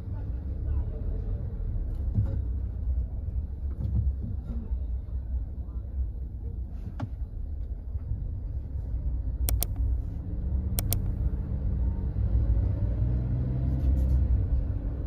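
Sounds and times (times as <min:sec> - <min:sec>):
car engine and road rumble: 0:00.0 - 0:15.0
sharp double clicks: 0:09.5 - 0:10.0, 0:10.8 - 0:11.4.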